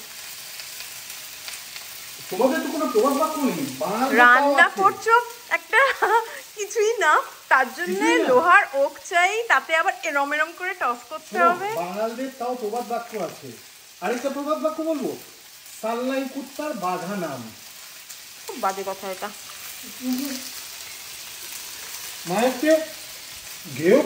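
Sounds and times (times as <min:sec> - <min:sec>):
vegetables sizzling in a wok: 0:00.0 - 0:24.0
man speaking: 0:02.2 - 0:05.1, 0:07.8 - 0:08.6, 0:11.2 - 0:15.2, 0:15.8 - 0:17.6, 0:22.2 - 0:23.0.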